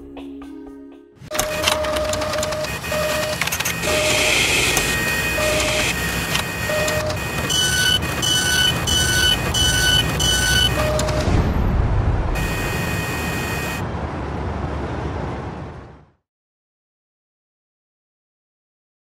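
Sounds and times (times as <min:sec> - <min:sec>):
mechanical rumble: 0:01.2 - 0:16.0
higher beeps: 0:01.3 - 0:11.4, 0:12.4 - 0:13.8
short beeps: 0:01.3 - 0:11.4.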